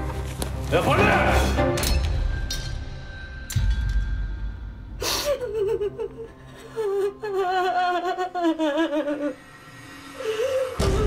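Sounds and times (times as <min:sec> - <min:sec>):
woman sobbing: 0:05.0 - 0:09.6.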